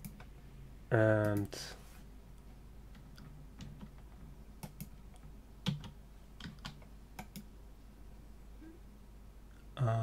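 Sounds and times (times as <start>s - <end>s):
keyboard and mouse clicks: 0.0s - 0.3s, 2.9s - 7.5s
low steady hum: 0.0s - 10.0s.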